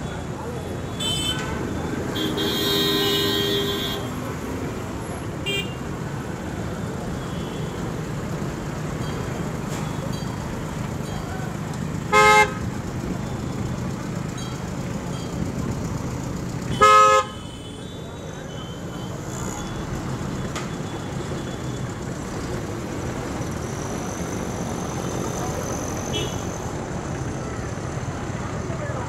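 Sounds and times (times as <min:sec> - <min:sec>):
street traffic engines: 0:00.0 - 0:29.0
vehicle horns honking: 0:00.9 - 0:04.2, 0:05.4 - 0:05.9, 0:12.1 - 0:12.8, 0:16.7 - 0:19.7, 0:26.1 - 0:26.6.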